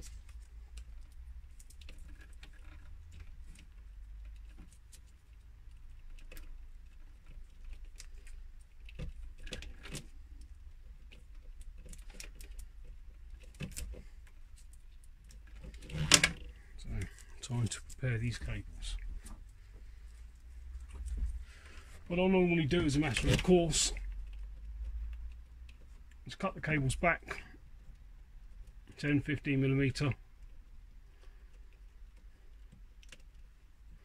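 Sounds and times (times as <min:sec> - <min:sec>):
hands peeling plastic tape: 0:00.0 - 0:21.4
cables clicking and rustling: 0:00.0 - 0:34.0
faint low hum: 0:00.0 - 0:34.0.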